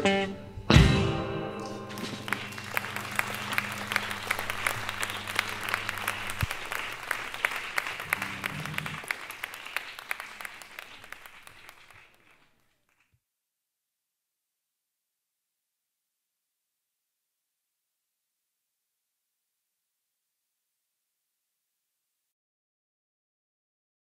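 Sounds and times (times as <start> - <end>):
audience applauding: 1.6 - 13.1.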